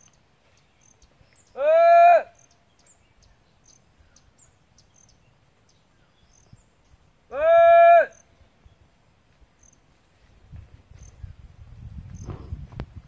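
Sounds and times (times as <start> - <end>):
faint insect chirps: 0.0 - 1.6, 2.3 - 7.2, 9.5 - 12.5.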